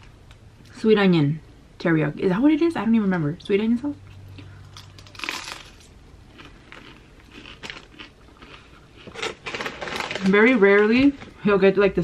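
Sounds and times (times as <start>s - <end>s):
crunching bites: 4.6s - 10.3s
quiet chewing: 6.3s - 9.9s.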